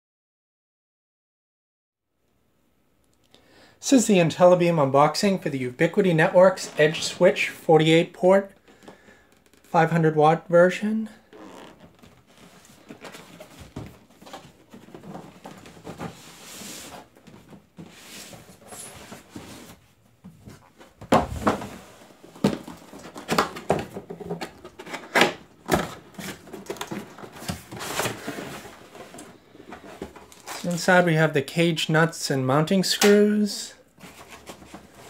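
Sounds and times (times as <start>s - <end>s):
cardboard box scraping and rustling: 11.7s - 19.8s.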